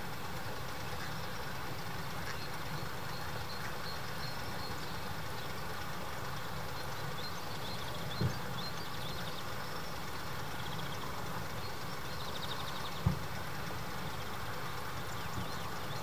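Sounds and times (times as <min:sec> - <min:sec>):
songbird chirping and trilling: 0:00.4 - 0:16.0.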